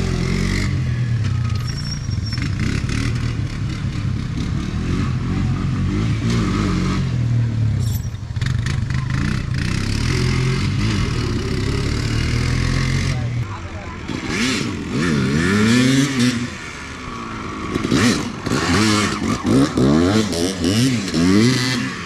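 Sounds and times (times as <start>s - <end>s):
atv engine revving: 0.0s - 22.0s.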